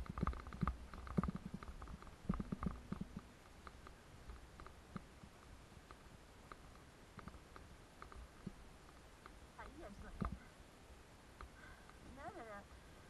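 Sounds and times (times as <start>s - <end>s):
mountain bike rattling: 0.0s - 5.0s.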